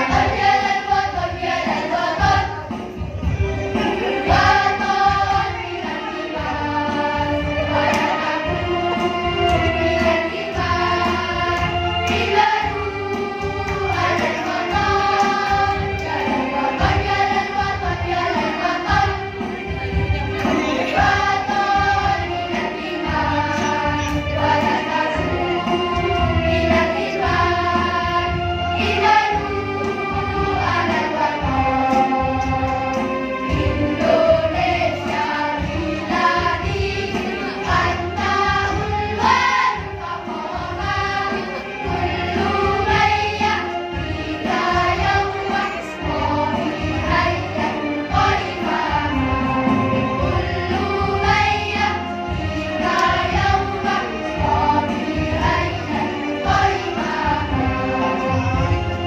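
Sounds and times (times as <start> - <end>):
choir singing: 0.0 - 59.0.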